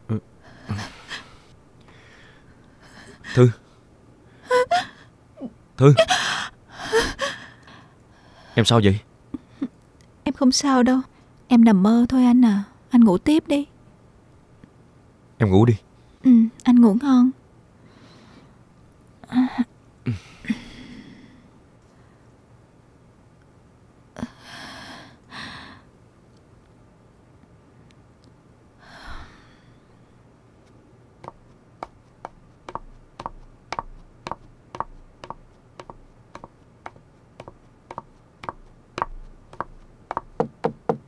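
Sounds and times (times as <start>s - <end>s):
breathy sighs: 20.1s - 21.5s, 28.8s - 29.9s
high heels clicking on tiled floor: 31.2s - 41.0s
knocks on wooden door: 37.9s - 41.0s.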